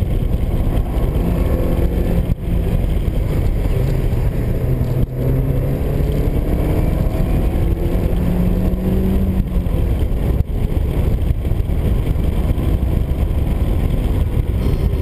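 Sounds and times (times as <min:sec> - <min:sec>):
car engine at speed: 0:00.0 - 0:15.0
road noise: 0:00.0 - 0:15.0.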